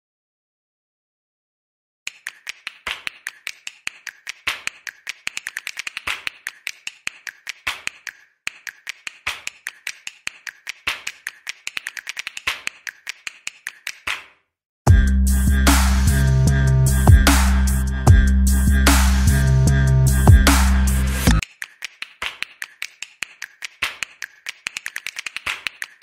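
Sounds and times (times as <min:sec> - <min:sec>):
rapid sharp clicks: 0:02.1 - 0:14.3, 0:21.2 - 0:26.0.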